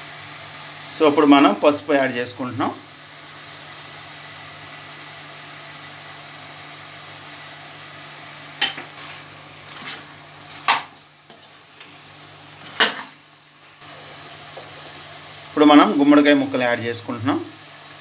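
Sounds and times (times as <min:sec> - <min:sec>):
chicken sizzling in oil: 0:00.0 - 0:18.0
metal spoon clattering against pan: 0:08.6 - 0:08.9.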